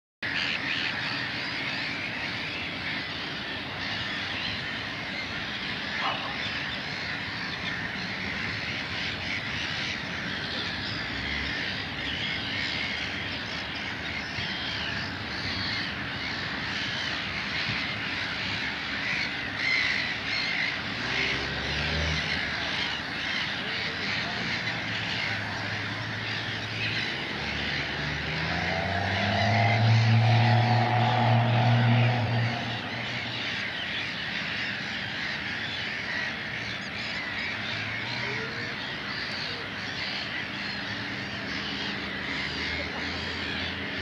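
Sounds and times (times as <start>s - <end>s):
chorus of birds calling: 0.2s - 44.0s
harsh crow-like calls: 0.2s - 44.0s
low pitched sound: 28.8s - 33.6s.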